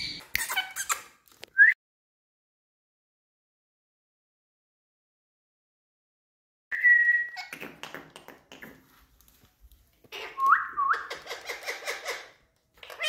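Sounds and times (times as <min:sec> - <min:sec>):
parakeets chattering: 0:10.1 - 0:13.0.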